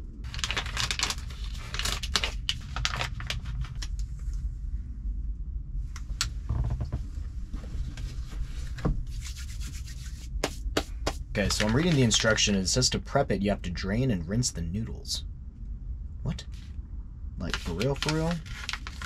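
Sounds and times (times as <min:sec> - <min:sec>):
steady low rumble: 0:00.0 - 0:19.0
packets rustling: 0:00.3 - 0:04.0, 0:09.4 - 0:12.2, 0:17.5 - 0:19.0.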